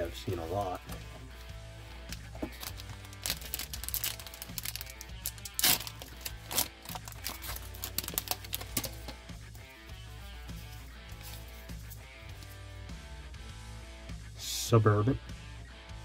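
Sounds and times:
quiet background music: 0.0 - 16.0
foil wrapper crinkling and tearing: 2.1 - 9.1.

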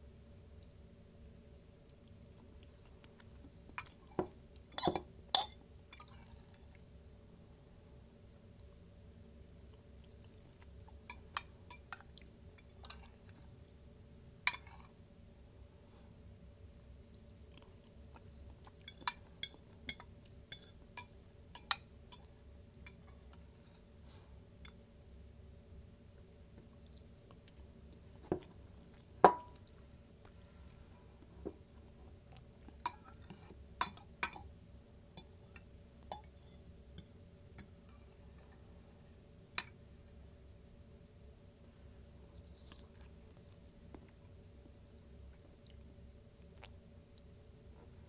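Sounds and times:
chewing: 26.5 - 30.7, 42.2 - 45.9.

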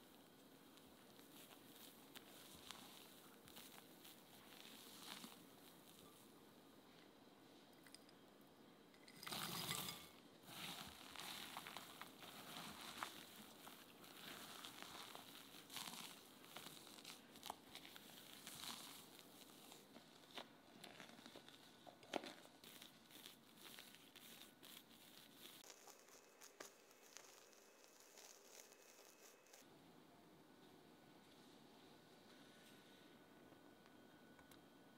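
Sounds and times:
spatula folding meringue: 0.0 - 7.1, 9.2 - 29.7
spatula spreading mixture on tray: 9.6 - 29.6.

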